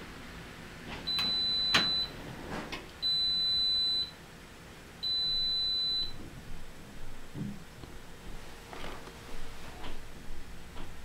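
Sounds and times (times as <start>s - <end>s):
washing machine beeps: 1.0s - 2.2s, 3.0s - 4.2s, 5.0s - 6.2s.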